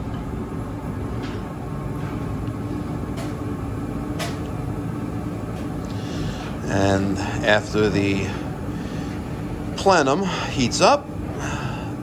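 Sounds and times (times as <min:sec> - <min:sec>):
furnace inducer motor humming: 0:00.0 - 0:12.0.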